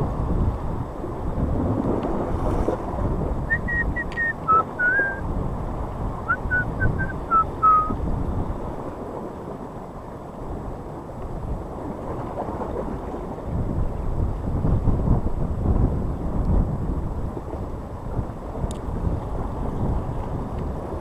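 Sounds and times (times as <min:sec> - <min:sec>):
surf washing against rocks: 0:00.0 - 0:21.0
wind buffeting microphone: 0:00.0 - 0:21.0
short whistled notes: 0:03.5 - 0:05.2, 0:06.3 - 0:08.0.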